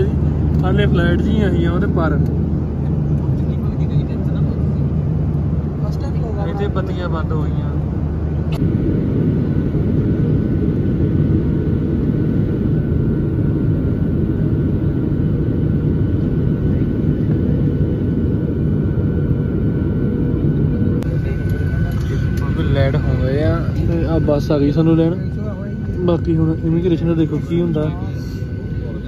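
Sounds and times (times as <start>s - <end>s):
jet engine cabin noise: 0.0s - 29.0s.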